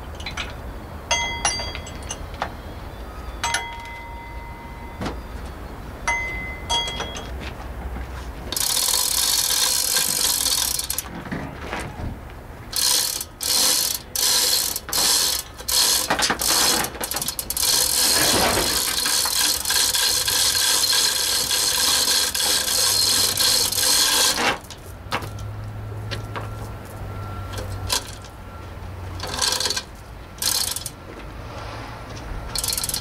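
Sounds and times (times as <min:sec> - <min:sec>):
ratchet clicking: 0:08.5 - 0:11.1, 0:12.7 - 0:24.8, 0:27.5 - 0:28.2, 0:29.2 - 0:31.0, 0:32.5 - 0:33.0.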